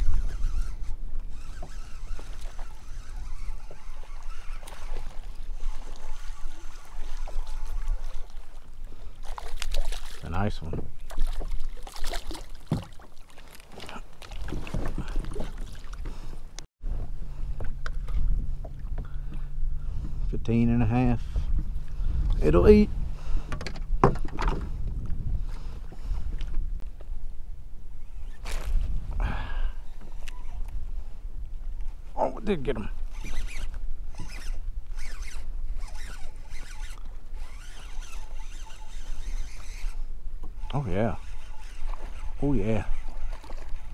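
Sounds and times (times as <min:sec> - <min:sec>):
low wind rumble on microphone: 0:00.0 - 0:09.0, 0:14.5 - 0:40.5
fishing reel whirring: 0:00.0 - 0:10.2, 0:29.9 - 0:30.7, 0:33.0 - 0:43.9
water splashing: 0:02.0 - 0:16.1, 0:41.2 - 0:43.9
knocks aboard a kayak: 0:23.5 - 0:24.7.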